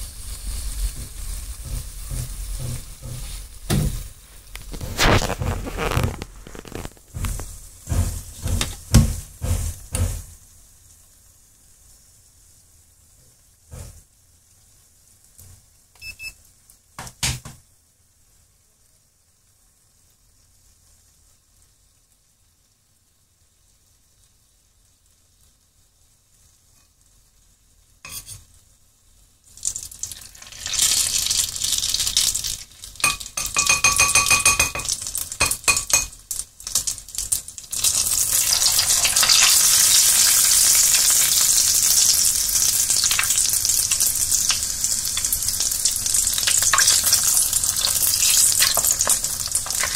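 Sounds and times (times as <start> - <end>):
oil sizzling and crackling: 0.0 - 49.9
metallic clinks against pot: 33.0 - 36.2.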